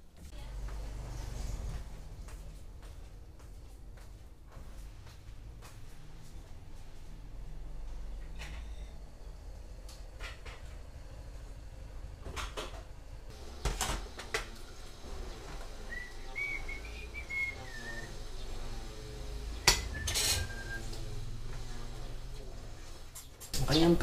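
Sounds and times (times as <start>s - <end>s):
man whistling: 15.9s - 18.1s, 19.9s - 21.0s
dishes and cutlery clinking: 19.7s - 20.7s.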